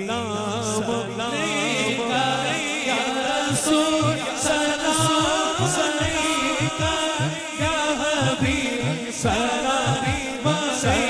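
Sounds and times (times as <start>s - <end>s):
men singing together: 0.0s - 11.0s
deep drum beat: 5.0s - 11.0s.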